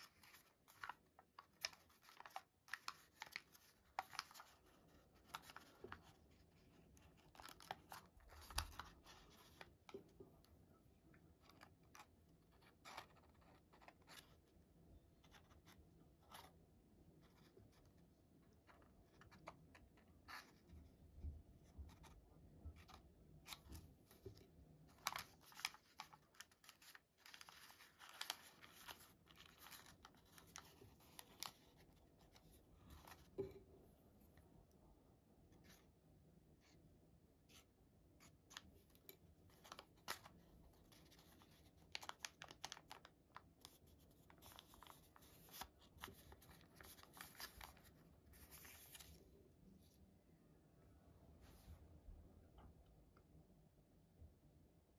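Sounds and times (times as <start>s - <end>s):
paper rustling and clicking: 0.0s - 10.1s, 18.6s - 20.7s, 21.9s - 33.3s, 38.2s - 49.2s.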